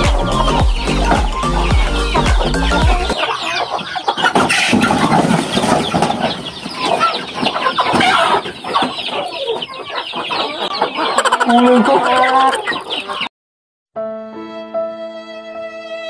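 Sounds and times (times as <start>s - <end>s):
background music: 0.0s - 3.2s, 14.0s - 16.0s
chickens clucking: 0.0s - 13.3s.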